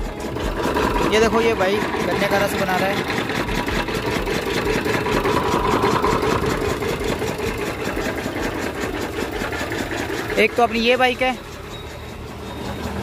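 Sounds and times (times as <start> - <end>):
juice crusher motor chugging: 0.0 - 13.0.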